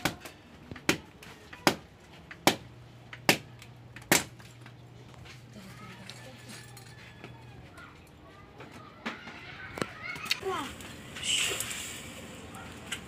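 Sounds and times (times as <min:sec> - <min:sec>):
machete chopping wood: 0:00.0 - 0:04.4.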